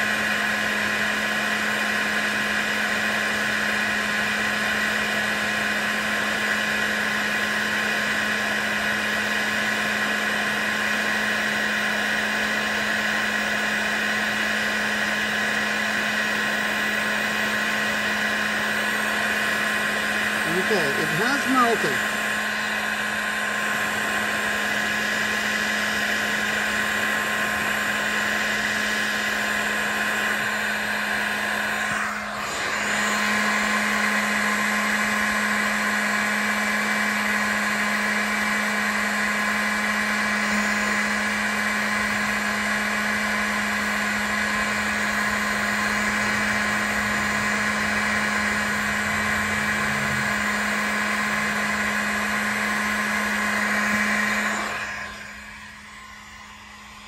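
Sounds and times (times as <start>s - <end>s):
heat gun fan humming: 0.0s - 57.0s.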